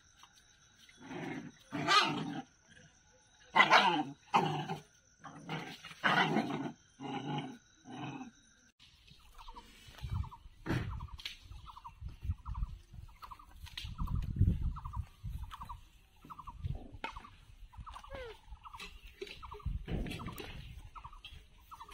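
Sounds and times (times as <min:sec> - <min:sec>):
dogs growling and snarling: 0:00.9 - 0:08.4
rustling and thuds on grass: 0:08.8 - 0:21.9.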